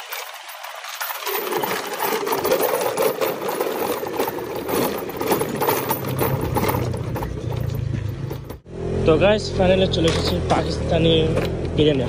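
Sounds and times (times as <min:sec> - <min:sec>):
low engine hum: 0:05.5 - 0:12.0.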